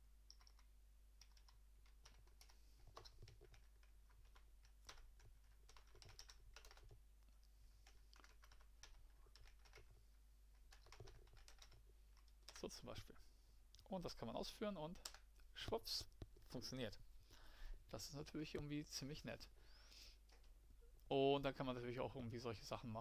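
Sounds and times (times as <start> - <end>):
low electrical hum: 0.0 - 23.0
typing on computer keyboard: 0.3 - 7.0, 7.8 - 10.0, 10.6 - 12.6.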